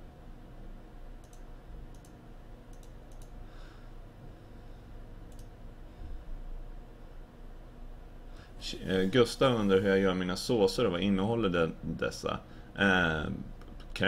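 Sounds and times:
low steady hum: 0.0 - 14.0
computer mouse clicking: 1.2 - 3.4, 5.3 - 5.5.

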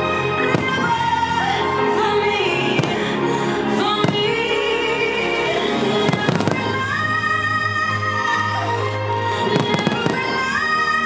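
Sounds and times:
music with long held notes: 0.0 - 11.0
fireworks bangs: 0.4 - 1.3, 2.7 - 3.2, 3.9 - 4.6, 6.0 - 7.0, 9.5 - 10.4.

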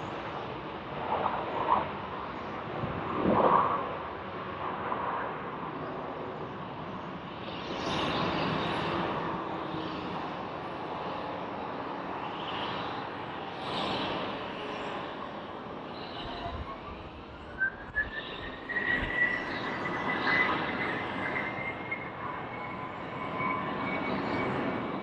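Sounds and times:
distant jet engines roaring: 0.0 - 25.0.

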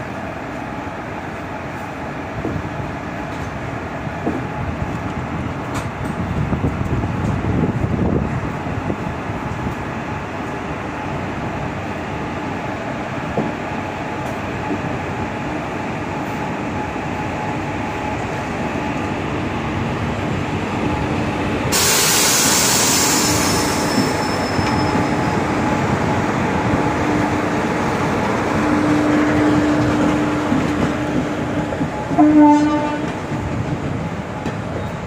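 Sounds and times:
train wheels rumbling on track: 0.0 - 35.0
loud hiss: 21.6 - 24.4.

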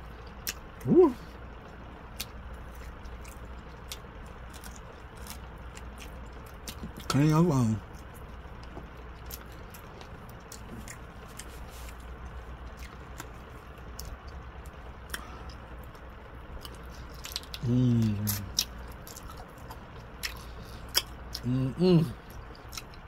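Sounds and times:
low steady hum: 0.0 - 23.0
person chewing chicken wing: 0.2 - 7.2, 7.8 - 23.0
person humming mmm: 0.8 - 1.3, 17.6 - 18.6, 21.3 - 22.3.

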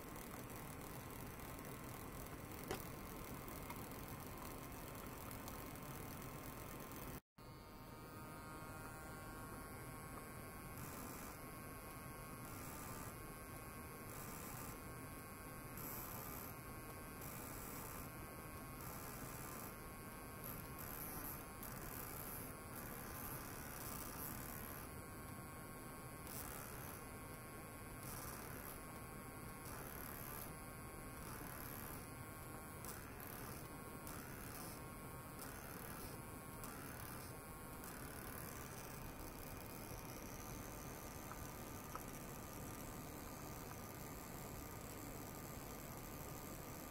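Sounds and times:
faint electrical hum and buzz: 0.0 - 46.9.

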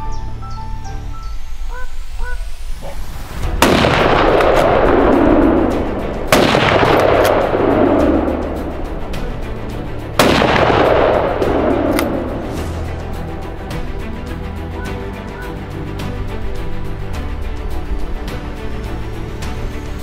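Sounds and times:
rifle shots echoing: 3.6 - 8.6, 10.2 - 12.6.

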